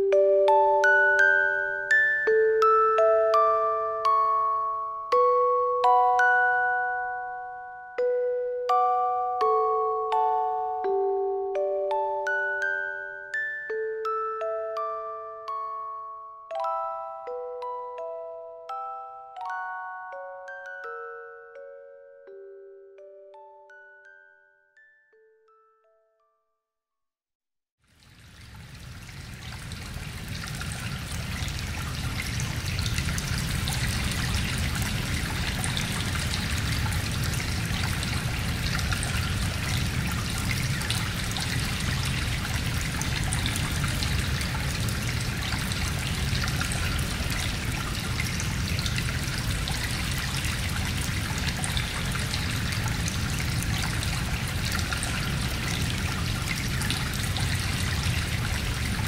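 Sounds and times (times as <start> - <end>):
rushing water: 27.9 - 59.0.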